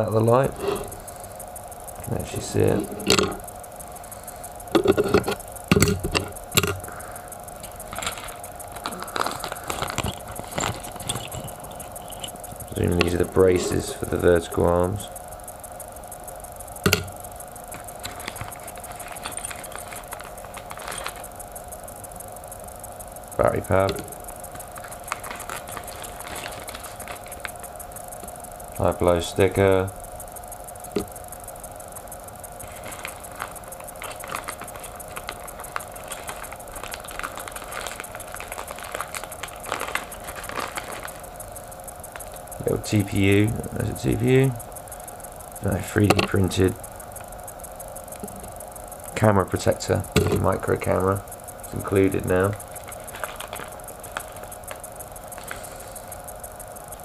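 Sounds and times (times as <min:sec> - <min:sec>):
faint handling ticks: 0:00.0 - 0:57.0
faint steady hum: 0:00.0 - 0:57.0
small parts clicking and tapping: 0:01.9 - 0:15.1, 0:16.2 - 0:22.2, 0:23.4 - 0:30.0, 0:32.5 - 0:45.0, 0:45.6 - 0:47.4, 0:48.1 - 0:57.0
plastic packaging rustling: 0:04.7 - 0:14.1, 0:16.9 - 0:21.4, 0:23.6 - 0:27.6, 0:32.6 - 0:43.0, 0:51.7 - 0:56.1.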